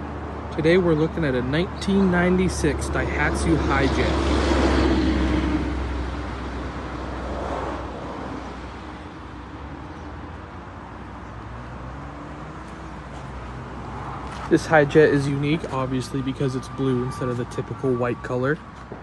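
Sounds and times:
traffic hum: 0.0s - 19.0s.

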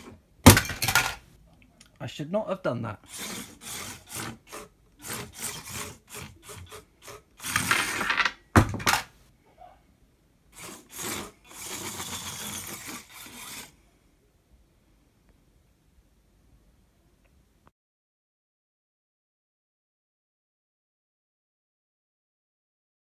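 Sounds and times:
robot wheels scraping on wood: 3.0s - 8.3s, 10.5s - 13.8s.

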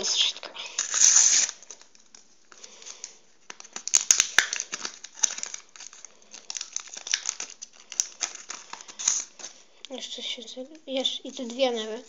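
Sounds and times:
packet tearing and crinkling: 0.0s - 9.6s.

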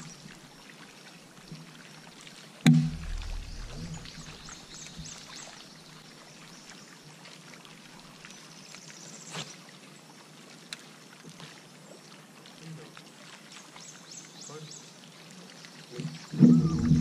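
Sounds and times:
water lapping against boat hull: 2.6s - 5.6s, 15.6s - 17.0s
low thump against boat: 2.7s - 5.2s, 16.0s - 17.0s.

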